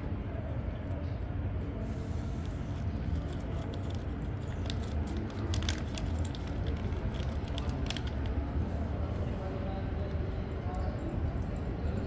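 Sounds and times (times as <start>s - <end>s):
cat crunching kibble: 2.8s - 8.3s.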